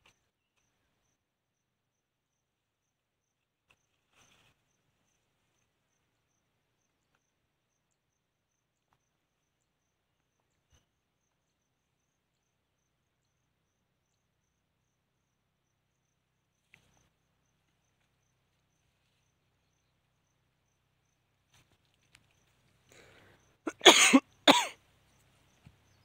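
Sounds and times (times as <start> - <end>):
faint cricket chirping: 0.0 - 26.0.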